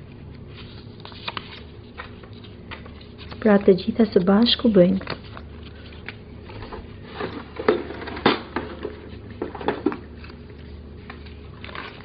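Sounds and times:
paper banknotes rustling: 0.1 - 7.7, 8.8 - 12.0.

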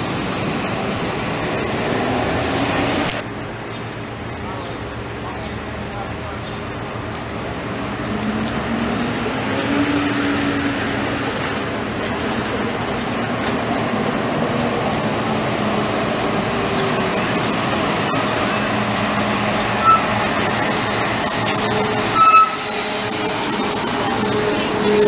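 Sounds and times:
diesel bus engine running: 0.0 - 25.0
brakes squealing: 8.1 - 25.0.

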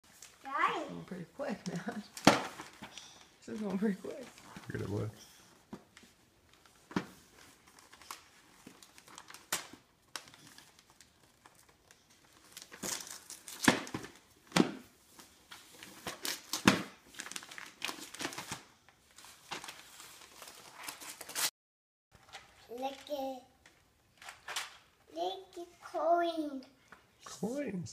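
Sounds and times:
wrapping paper tearing: 7.4 - 14.0, 15.8 - 18.7, 19.3 - 21.5.

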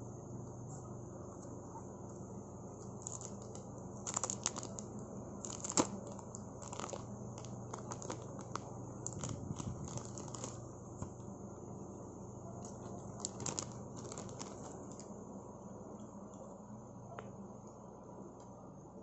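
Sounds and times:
plastic wrapping crinkling: 2.8 - 11.2, 12.6 - 15.1.

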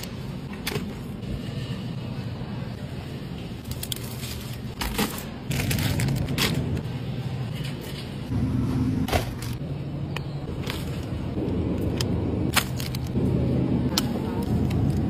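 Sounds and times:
shopping cart rumbling: 4.0 - 8.3.

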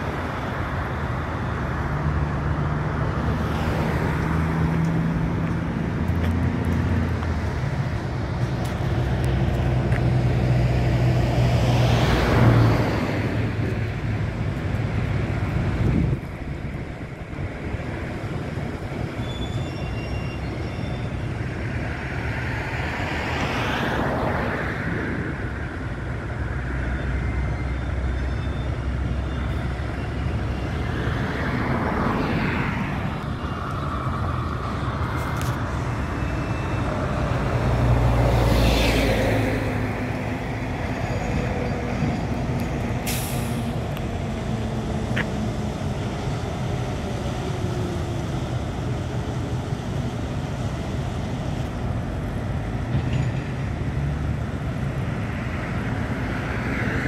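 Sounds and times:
road traffic rumble: 0.0 - 57.0
vehicles passing by: 0.0 - 57.0.

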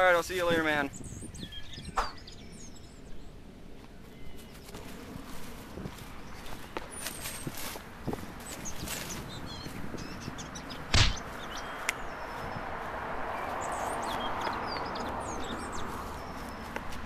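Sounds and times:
small birds chirping: 0.0 - 17.0
loud thump: 10.9 - 11.3.

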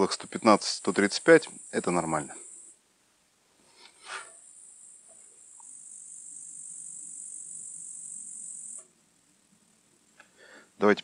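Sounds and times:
insect chorus trilling: 0.0 - 2.8, 4.1 - 9.0.

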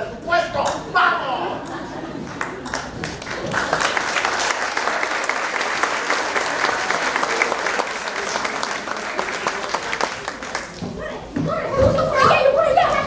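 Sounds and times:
audience applauding: 2.3 - 10.8.

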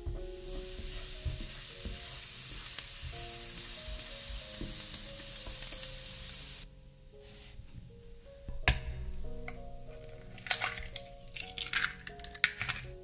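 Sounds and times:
garlic sizzling in oil: 0.0 - 6.7
soft background music: 0.0 - 13.0
spatula stirring in pan: 0.1 - 6.0.

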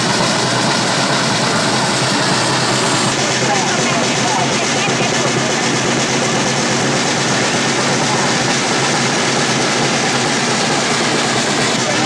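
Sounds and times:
crowd cheering and shouting: 0.0 - 12.0.

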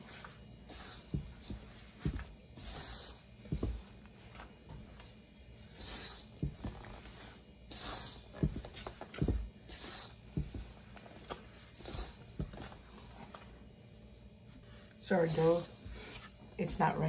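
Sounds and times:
flour rustling: 0.0 - 13.6
dough squishing: 0.0 - 16.8
dull thumps of dough pressed: 1.0 - 5.0, 6.3 - 7.1, 8.2 - 11.4.

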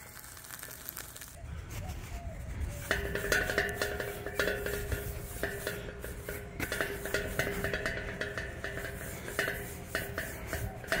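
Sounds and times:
steady hum: 2.4 - 11.0
paper towel wiping pan: 2.8 - 11.0.

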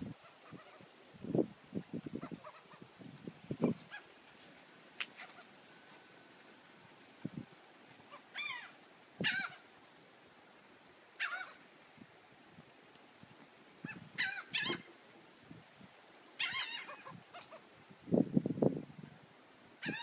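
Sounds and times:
seagulls calling: 8.1 - 9.6, 11.2 - 11.6, 13.9 - 14.9, 16.4 - 17.6.

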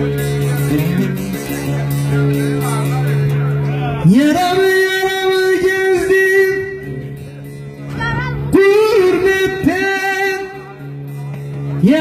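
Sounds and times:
man singing folk lament: 4.0 - 7.0, 8.5 - 10.8.

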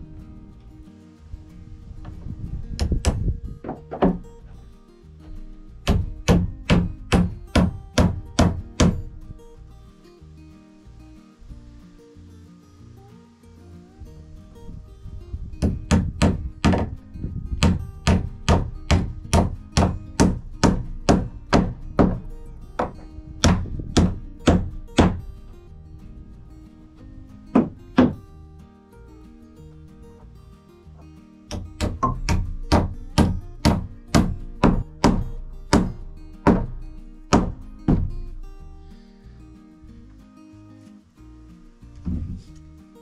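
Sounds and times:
background music: 0.0 - 43.0
hammer striking nail: 2.8 - 4.2, 5.8 - 9.1, 15.6 - 16.9, 17.6 - 25.2, 27.6 - 28.2, 31.5 - 38.1.

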